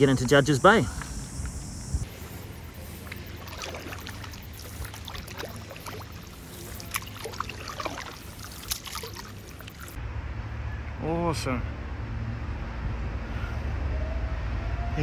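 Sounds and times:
water dripping off paddle blade: 0.2 - 10.0
paddle strokes in water: 2.1 - 10.0.

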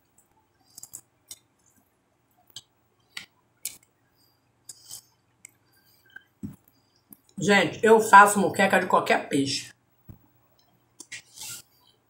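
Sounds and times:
wet mouth clicks and lip smacks: 0.7 - 1.5, 2.5 - 3.8.

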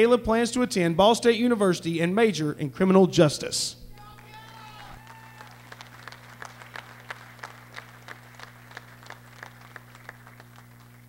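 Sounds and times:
electrical hum: 0.0 - 11.0
people clapping: 3.9 - 11.0.

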